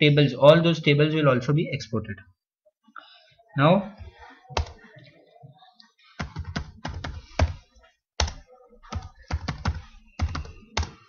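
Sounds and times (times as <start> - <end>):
computer keyboard typing: 6.2 - 7.6, 8.2 - 11.0.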